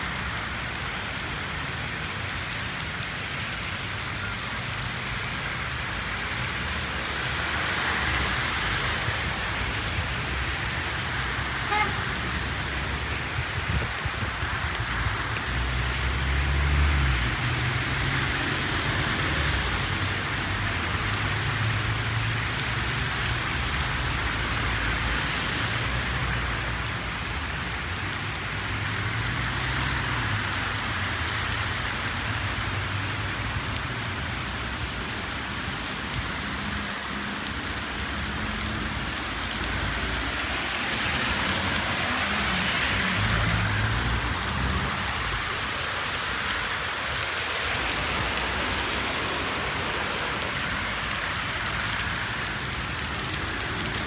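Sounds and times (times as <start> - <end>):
cars passing on wet road: 0.0 - 54.0
heavy rain on road: 0.0 - 54.0.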